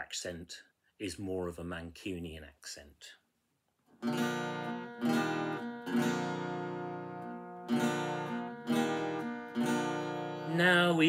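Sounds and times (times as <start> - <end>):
acoustic guitar strumming chords: 3.9 - 11.0.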